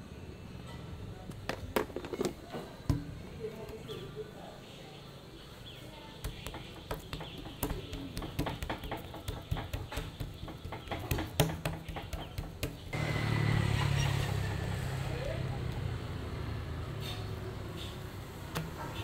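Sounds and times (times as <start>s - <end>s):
sharp taps and knocks: 6.2s - 13.0s.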